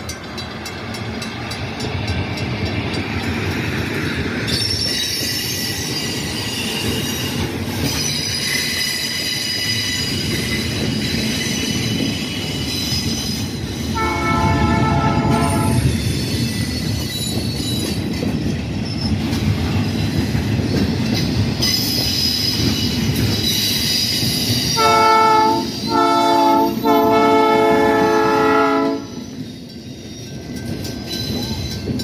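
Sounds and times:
freight train rolling past: 0:00.0 - 0:32.0
wheel squeal: 0:04.5 - 0:13.6, 0:18.8 - 0:19.3
locomotive air horn blasts: 0:14.0 - 0:15.8, 0:24.8 - 0:29.2.

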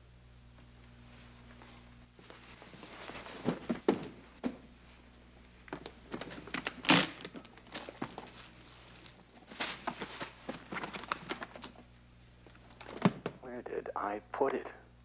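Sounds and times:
cloth rustling: 0:02.2 - 0:05.1.

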